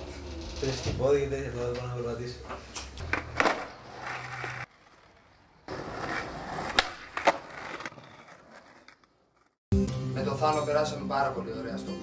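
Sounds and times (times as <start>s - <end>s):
skateboard wheels rolling on pavement: 3.0s - 9.6s
skateboard clacks: 5.7s - 9.5s.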